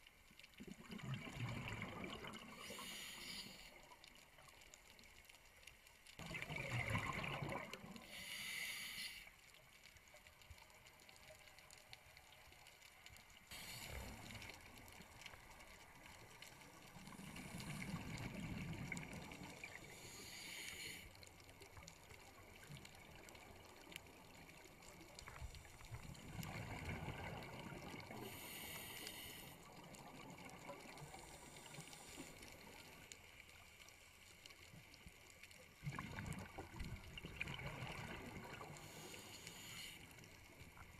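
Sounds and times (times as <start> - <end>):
regulator breathing hiss: 2.6 - 3.8, 8.0 - 9.4, 13.5 - 14.4, 19.8 - 21.2, 28.2 - 29.7, 38.8 - 40.2.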